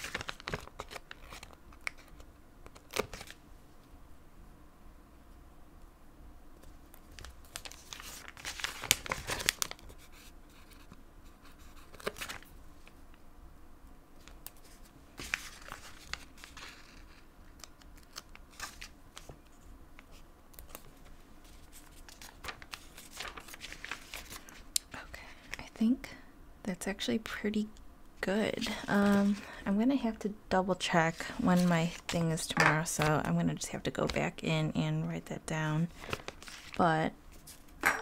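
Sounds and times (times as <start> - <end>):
paper crinkling and rustling: 0.0 - 3.4, 6.6 - 13.0, 14.2 - 24.7, 28.6 - 29.6, 31.1 - 34.2, 35.9 - 37.7.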